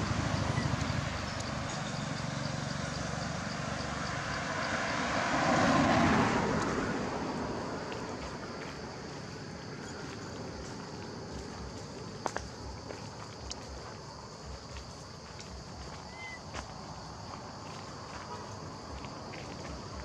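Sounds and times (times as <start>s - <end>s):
vehicle passing by: 0.0s - 12.8s.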